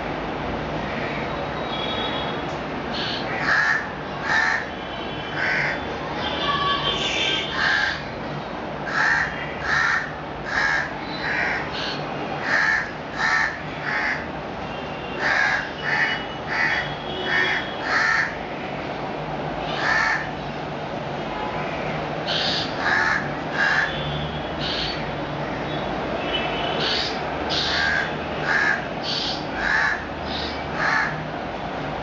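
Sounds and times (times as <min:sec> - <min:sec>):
young bird giving crow-like caws: 0:02.9 - 0:04.8, 0:05.4 - 0:05.8, 0:07.5 - 0:08.1, 0:08.8 - 0:14.3, 0:15.2 - 0:18.4, 0:19.6 - 0:20.4, 0:21.6 - 0:24.0, 0:24.6 - 0:25.9, 0:26.8 - 0:31.3.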